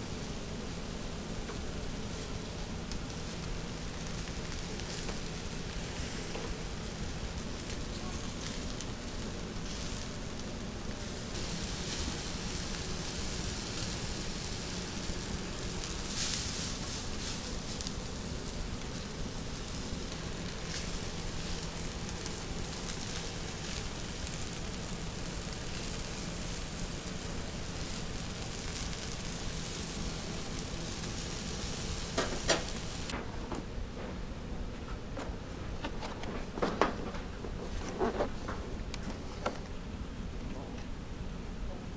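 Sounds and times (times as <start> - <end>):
skewers sizzling: 0.0 - 33.2.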